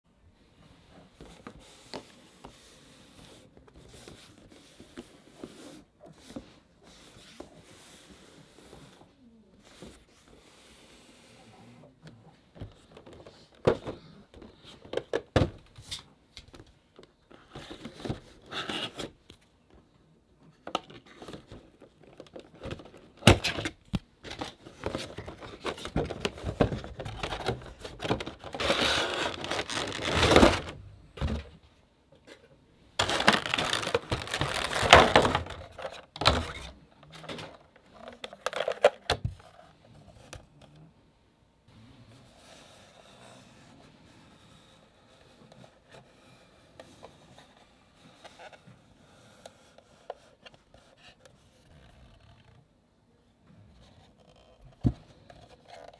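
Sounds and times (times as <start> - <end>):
plastic packaging crinkling: 27.2 - 30.8, 33.0 - 36.4.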